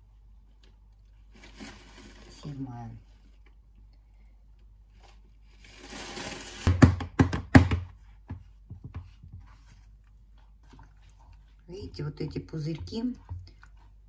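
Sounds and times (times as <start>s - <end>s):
plastic tray knocking on countertop: 6.7s - 9.0s.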